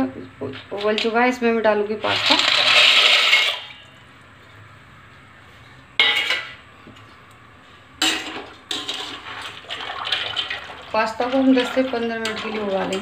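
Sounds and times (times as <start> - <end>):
dry pasta rattling into a pot: 2.1 - 3.7
metal kitchenware clanks: 6.0 - 6.6, 8.0 - 9.2.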